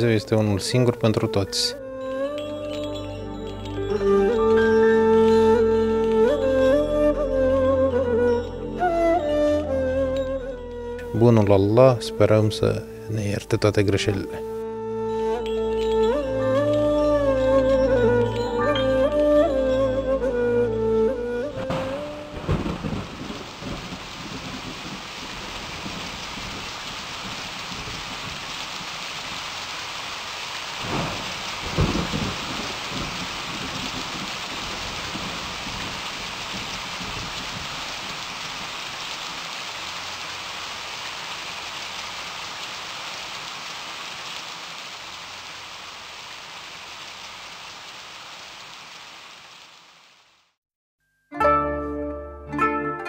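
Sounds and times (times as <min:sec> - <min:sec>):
heavy rain splashing: 0:02.3 - 0:08.2, 0:15.3 - 0:50.6
low rolls of thunder: 0:21.6 - 0:28.6, 0:30.8 - 0:38.8.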